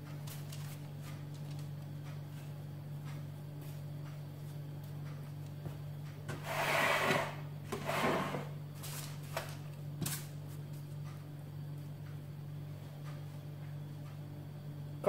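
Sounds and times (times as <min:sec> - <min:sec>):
metal tray scraping countertop: 0:06.3 - 0:08.6.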